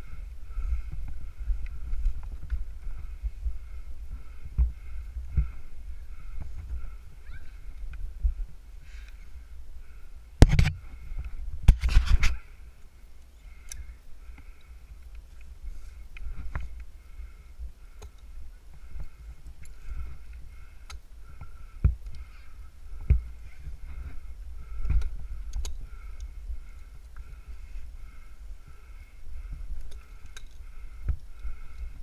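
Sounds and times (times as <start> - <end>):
sharp knocks against tree: 10.4 - 10.8.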